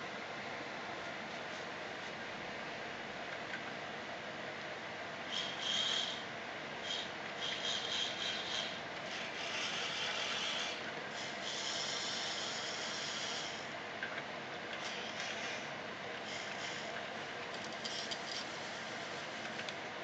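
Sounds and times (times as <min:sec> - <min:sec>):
gear motors whirring: 0:06.8 - 0:13.7, 0:14.7 - 0:19.8.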